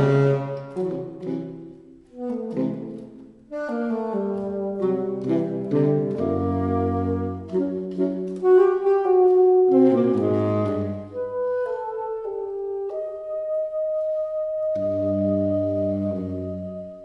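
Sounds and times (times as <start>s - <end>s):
saxophone trio playing chamber music: 0.0s - 17.0s.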